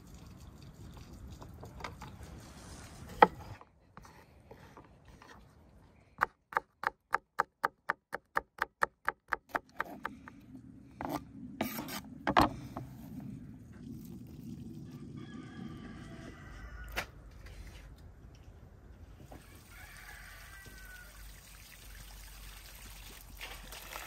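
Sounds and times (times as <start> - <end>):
knocks and scrapes on board: 1.8 - 5.5, 9.5 - 10.4, 11.0 - 13.0
knife chopping on wooden board: 6.2 - 10.2.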